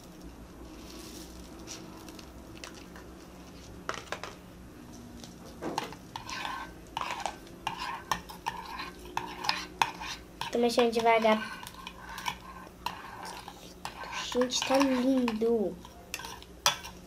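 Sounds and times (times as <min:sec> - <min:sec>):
spoon scraping and clinking in bowl: 0:05.8 - 0:17.0.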